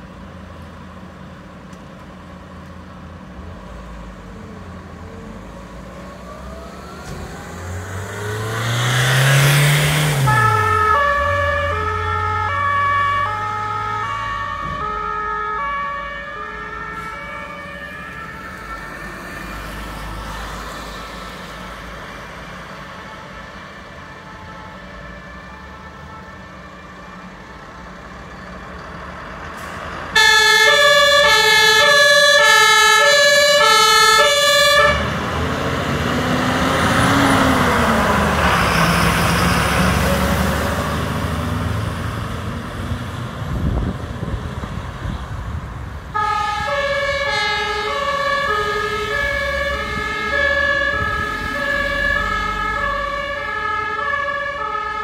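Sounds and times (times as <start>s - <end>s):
fire engine rumble: 0.0s - 8.5s, 10.3s - 55.0s
truck tyres on wet road: 0.0s - 26.2s, 27.4s - 55.0s
two-tone siren: 5.7s - 21.2s, 22.1s - 28.6s, 30.2s - 35.2s, 46.1s - 55.0s.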